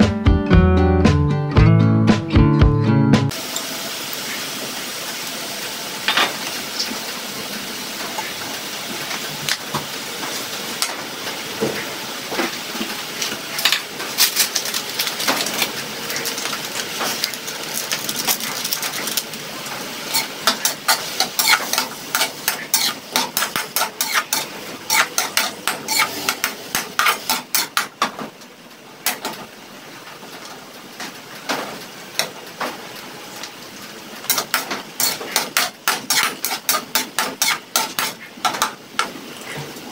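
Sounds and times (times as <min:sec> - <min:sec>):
meat sizzling in a wok: 0:03.3 - 0:28.1, 0:28.8 - 0:39.9
metal spatula scraping a pan: 0:20.1 - 0:27.9, 0:34.3 - 0:38.6.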